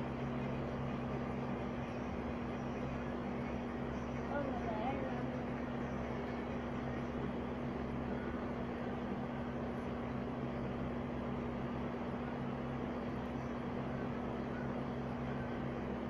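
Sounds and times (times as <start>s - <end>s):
steady machine hum: 0.0s - 16.0s.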